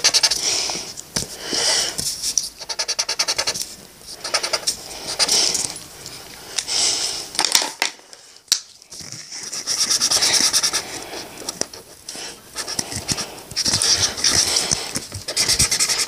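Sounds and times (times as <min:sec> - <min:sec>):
marker scribbling on paper: 0:00.0 - 0:00.4, 0:02.0 - 0:05.8, 0:09.3 - 0:16.0.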